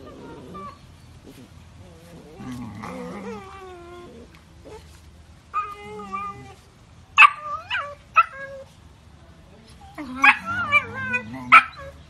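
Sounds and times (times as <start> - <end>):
puppy yipping: 7.2 - 8.6
puppy howling: 10.0 - 12.0.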